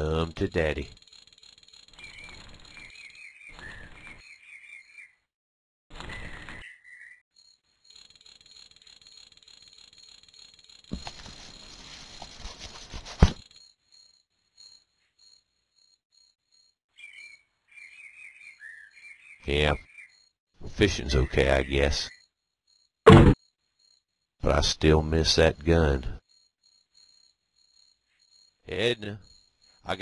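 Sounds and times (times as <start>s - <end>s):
high insect trill: 0.1s - 3.3s, 7.4s - 17.4s, 19.0s - 30.0s
birds chirping: 1.9s - 5.3s, 5.9s - 7.2s, 16.9s - 22.2s.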